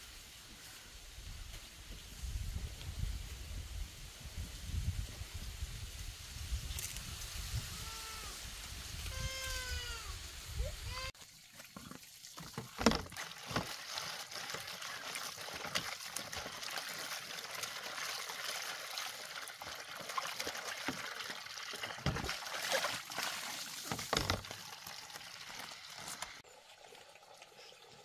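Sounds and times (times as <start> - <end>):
water trickling into basin: 11.2 - 28.0.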